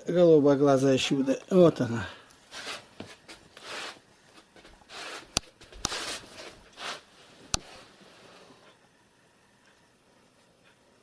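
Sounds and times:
scuffling on bare floor: 0:02.5 - 0:07.9.

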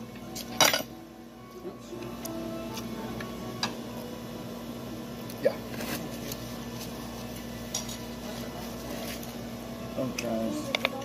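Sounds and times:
restaurant background hum: 0:00.0 - 0:11.0
tableware clinking: 0:00.4 - 0:00.9, 0:07.6 - 0:08.2.

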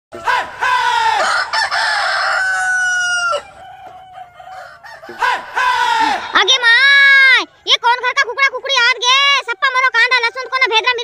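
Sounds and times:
rooster crowing: 0:00.2 - 0:06.3, 0:09.0 - 0:11.0.

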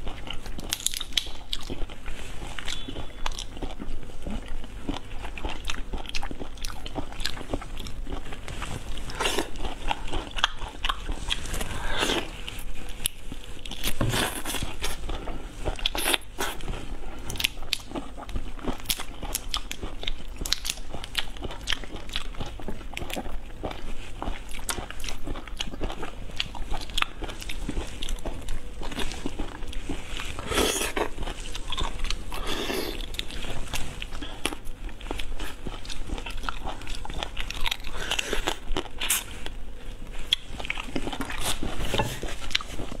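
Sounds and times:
person chewing crunchy food: 0:00.0 - 0:43.0.

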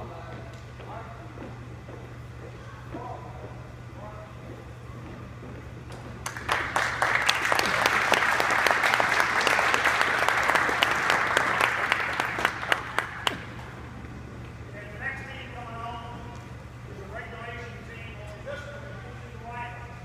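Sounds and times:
audience applauding: 0:06.2 - 0:13.6.

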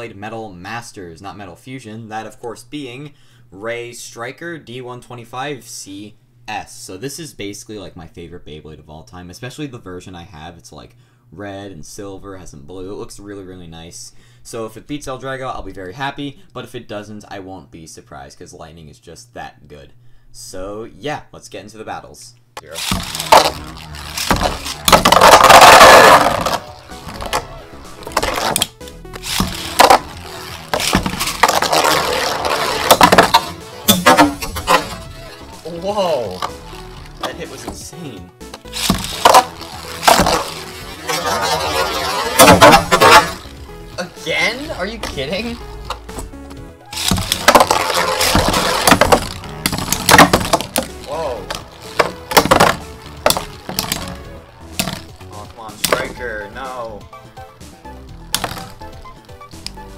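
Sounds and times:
background music: 0:22.6 - 0:59.9
spinning tops grinding rush: 0:22.7 - 0:37.7, 0:38.6 - 0:45.8, 0:47.0 - 0:56.1
spinning tops whirring: 0:22.7 - 0:37.7, 0:38.5 - 0:43.9, 0:46.9 - 0:56.2.

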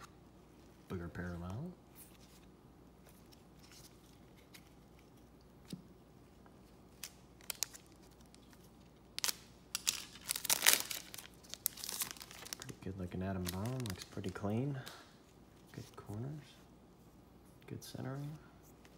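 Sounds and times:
foil wrapper tearing and crinkling: 0:07.0 - 0:08.5, 0:09.2 - 0:12.8.

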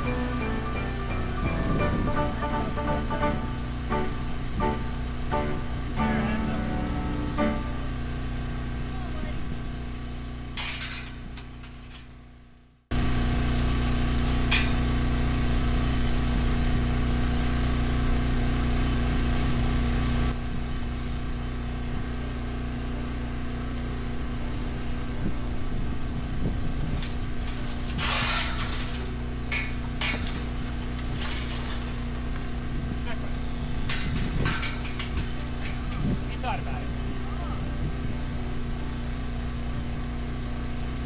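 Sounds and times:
engine running: 0:00.0 - 0:41.0
metallic clanks and rattles: 0:10.5 - 0:12.4, 0:14.3 - 0:14.9, 0:26.9 - 0:32.6, 0:33.6 - 0:36.6.

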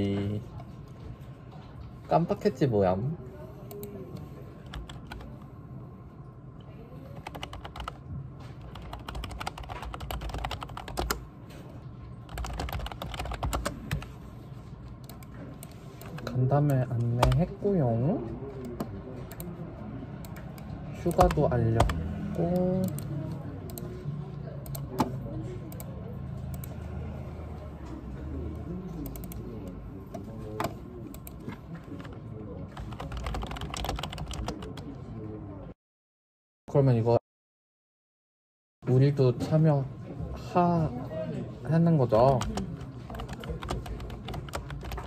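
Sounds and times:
low steady hum: 0:00.0 - 0:35.7
fast keyboard typing: 0:04.6 - 0:05.3, 0:07.1 - 0:11.2, 0:12.2 - 0:14.2, 0:15.0 - 0:17.5, 0:20.3 - 0:23.8, 0:30.6 - 0:34.8, 0:42.1 - 0:45.0.

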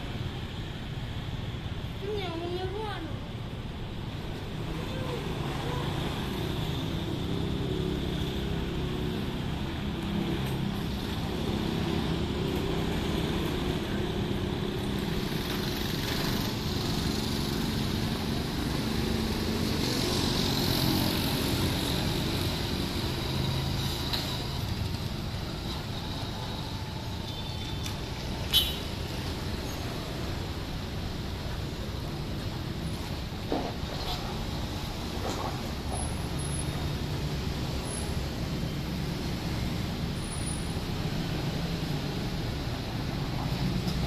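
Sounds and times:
cars passing: 0:03.8 - 0:27.3
motorbikes passing: 0:04.3 - 0:33.4.

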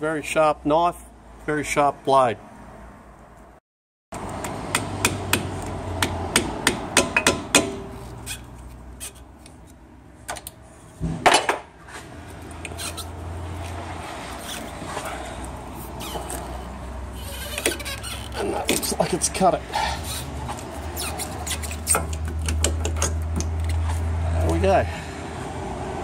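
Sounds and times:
hammer knocking on metal blade: 0:04.4 - 0:08.0.

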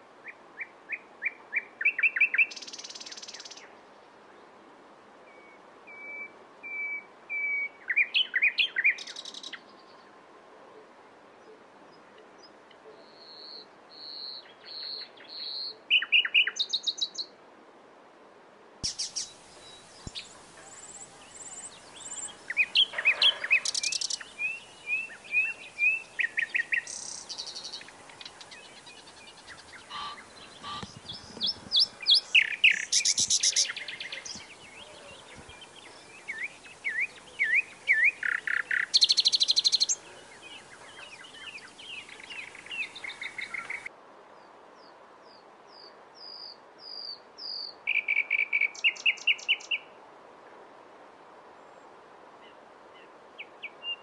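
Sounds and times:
nightingale singing: 0:00.2 - 0:03.7, 0:05.3 - 0:09.9, 0:12.4 - 0:17.3, 0:18.8 - 0:43.9, 0:45.7 - 0:49.9.

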